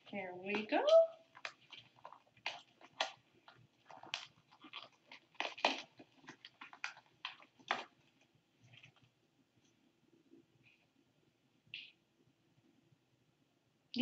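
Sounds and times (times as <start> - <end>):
crackles and light clicks: 0.0 - 11.0.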